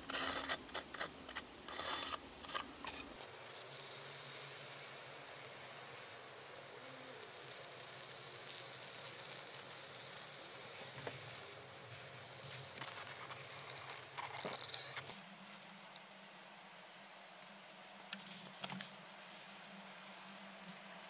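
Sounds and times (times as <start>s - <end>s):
hot wire cutting foam hiss: 0.0s - 16.2s
foam crackling: 4.8s - 15.2s.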